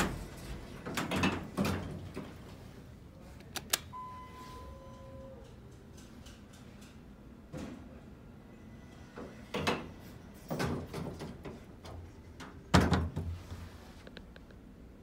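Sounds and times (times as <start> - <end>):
elevator doors knocking and rumbling: 0.0 - 2.5.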